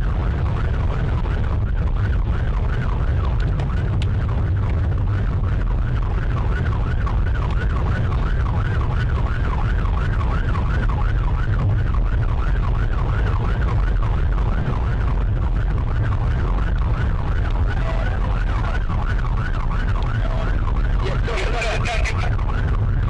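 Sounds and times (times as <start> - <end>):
road and engine rumble: 0.0 - 23.0
police siren yelp: 5.9 - 23.0.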